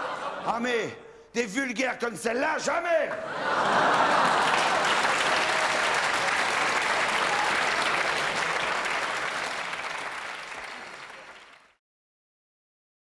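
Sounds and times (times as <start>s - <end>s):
audience applauding: 3.4s - 11.8s.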